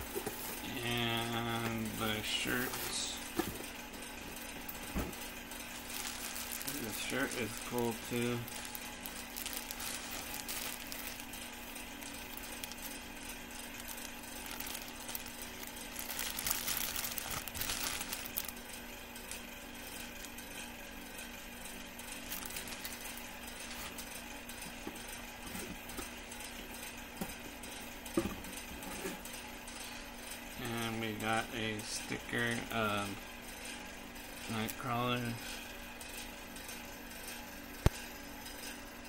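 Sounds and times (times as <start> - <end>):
background hum: 0.0 - 39.0
plastic bag crinkling: 0.1 - 20.5, 22.0 - 24.1.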